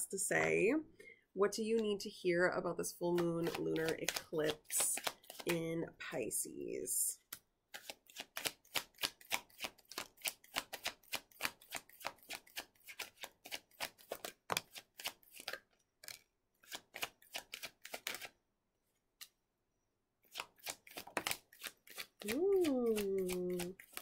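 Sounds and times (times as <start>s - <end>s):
cards being shuffled: 3.1s - 5.6s, 7.3s - 18.4s, 20.2s - 24.0s.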